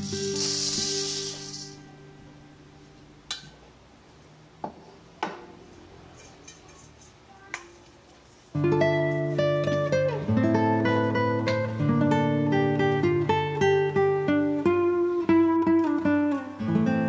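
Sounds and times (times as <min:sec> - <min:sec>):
coffee beans pouring into metal bowl: 0:00.0 - 0:01.8.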